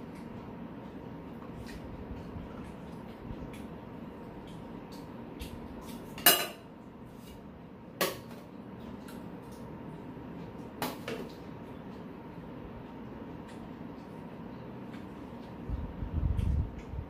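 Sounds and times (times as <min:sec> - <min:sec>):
steady low hum: 0:00.0 - 0:17.0
spoons clinking on metal bowls: 0:06.2 - 0:06.6.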